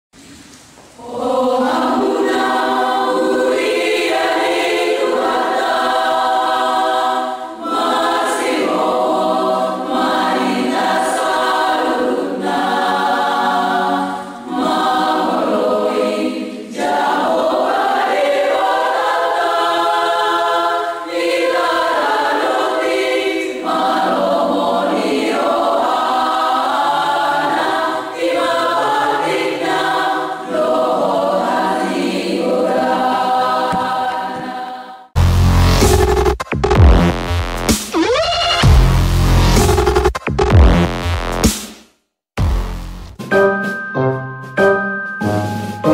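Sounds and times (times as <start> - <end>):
women's choir singing: 1.0 - 35.2.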